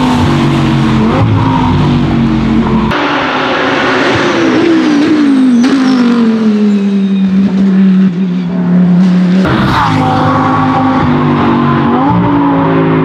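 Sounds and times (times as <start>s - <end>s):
higher engine sound: 0.0s - 13.0s
race car engine: 0.0s - 13.0s.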